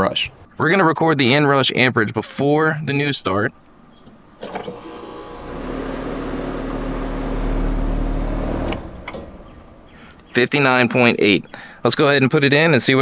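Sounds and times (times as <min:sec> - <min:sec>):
compressor and fan hum: 0:03.7 - 0:10.8
relay clicks: 0:04.0 - 0:10.4.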